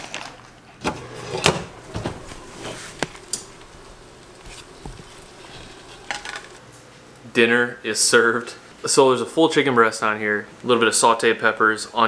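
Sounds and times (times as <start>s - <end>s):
kitchen knocks and clicks: 0.8s - 6.6s.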